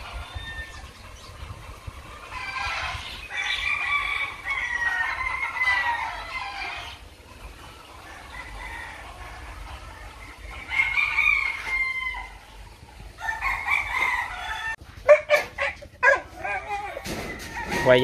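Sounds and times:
rooster crowing: 2.4 - 6.9, 10.6 - 12.4, 13.2 - 14.8.

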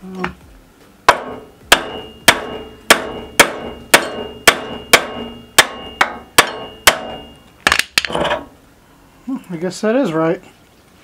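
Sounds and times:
hammer striking metal wheel hub: 1.1 - 7.4.

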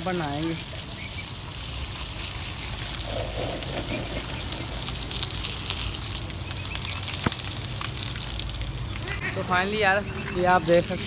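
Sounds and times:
water gushing onto dirt: 0.0 - 11.0
crackly spatter: 2.3 - 9.3.

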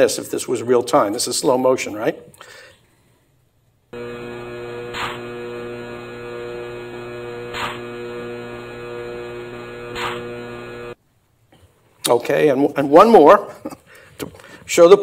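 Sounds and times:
static crackles: 4.0 - 11.0
steady electronic hum: 4.0 - 11.0.

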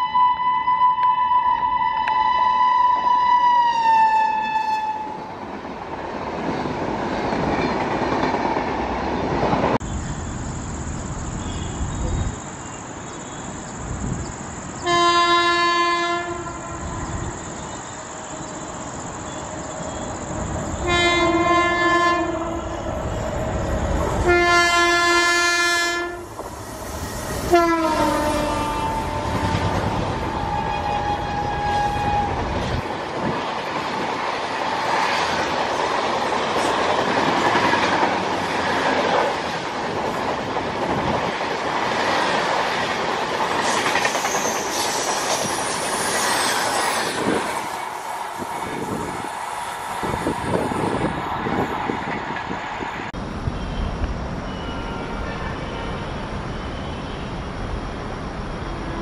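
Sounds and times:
passing train running noise: 0.0 - 59.0
locomotive air horn blasts: 14.8 - 17.0, 20.8 - 22.8, 24.2 - 26.3, 27.5 - 29.8, 54.5 - 56.2.

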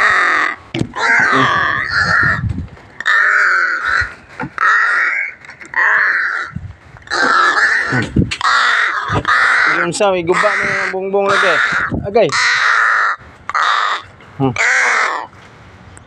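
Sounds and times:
crow cawing: 0.0 - 2.4, 3.0 - 15.3.

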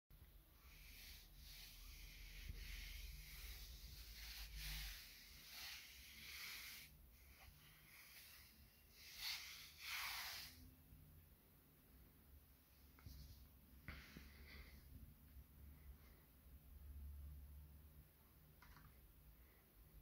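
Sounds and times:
hand brushing over fabric: 0.6 - 10.6, 12.9 - 14.7.

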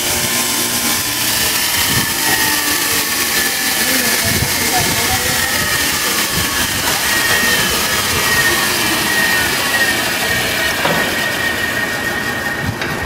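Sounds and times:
grinder whining: 0.0 - 13.0.

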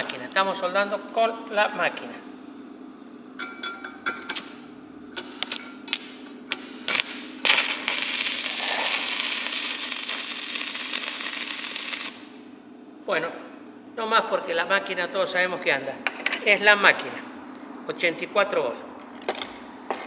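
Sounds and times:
arc welding crackling sizzle: 4.4 - 12.6.

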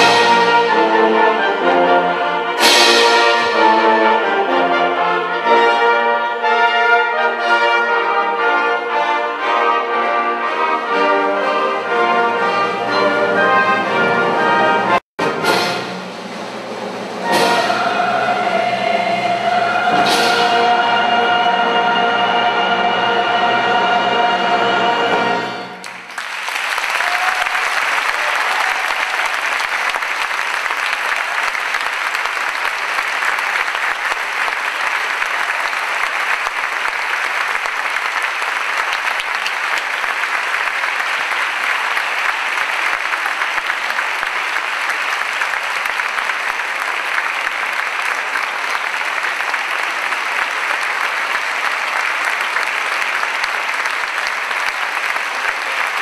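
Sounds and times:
music: 0.0 - 25.9
audience applauding: 25.8 - 56.0.

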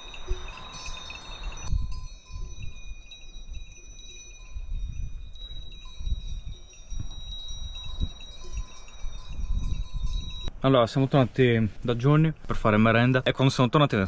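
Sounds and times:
sheep bells ringing: 0.0 - 10.5
wind buffeting microphone: 0.0 - 10.6.

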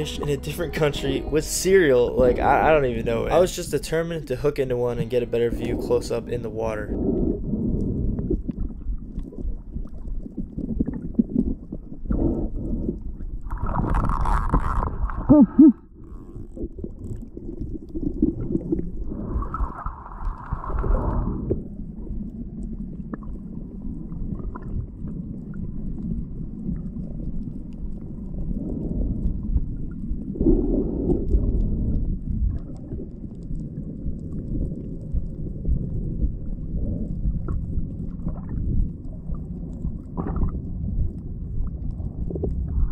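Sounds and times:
underwater rumbling water: 0.0 - 42.9
gurgling bubbling water: 1.7 - 42.9.

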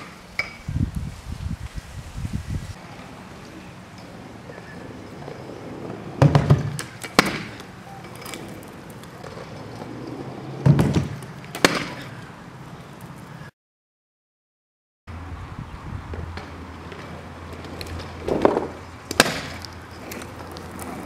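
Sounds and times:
scooter wheels rolling on road: 0.0 - 13.5, 15.1 - 21.0
scooter landing thud: 6.2 - 7.7, 10.6 - 12.2, 18.2 - 19.6.

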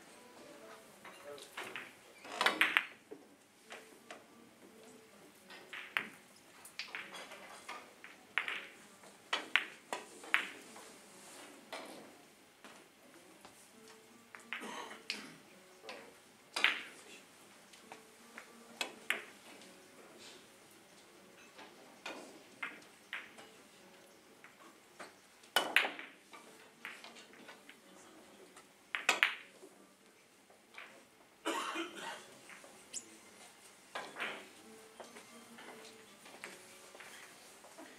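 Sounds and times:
billiard balls rattling: 1.4 - 3.0, 6.8 - 10.8
billiard balls clicking: 1.4 - 4.2, 5.5 - 12.0, 13.4 - 15.2, 15.8 - 17.0, 17.7 - 19.8, 21.5 - 27.8, 28.4 - 29.7, 33.9 - 37.3.

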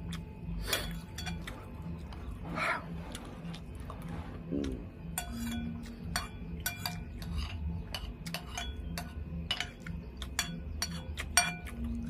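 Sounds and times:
metal spoon clinking on ceramic bowl: 0.8 - 1.5, 5.2 - 11.9.

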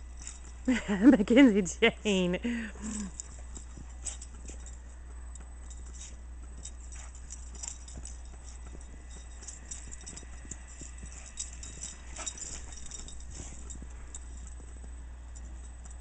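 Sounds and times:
footsteps crunching in snow: 5.8 - 15.0.

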